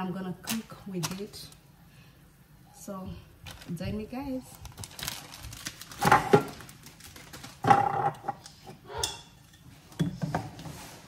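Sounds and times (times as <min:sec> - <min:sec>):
packets clattering and rustling: 0:04.6 - 0:08.1.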